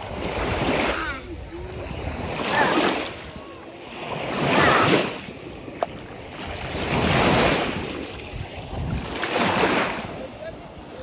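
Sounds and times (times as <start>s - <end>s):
waves washing onto sandy shore: 0.0s - 11.0s.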